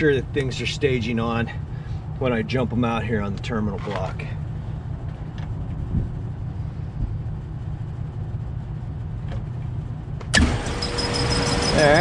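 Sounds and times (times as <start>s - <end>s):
hvac unit low rumble: 0.0s - 12.0s
blower whine: 10.2s - 12.0s.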